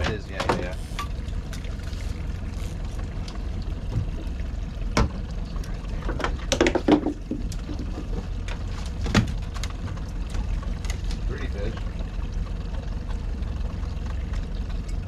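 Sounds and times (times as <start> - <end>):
boat motor humming: 0.0 - 15.0
water splashing against boat: 0.0 - 15.0
sharp knock on boat: 4.9 - 5.2.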